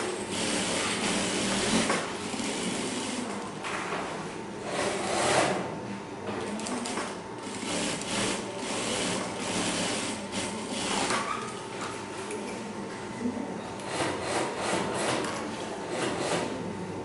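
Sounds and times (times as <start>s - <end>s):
sewing machine stitching: 0.3s - 3.2s, 6.8s - 11.5s.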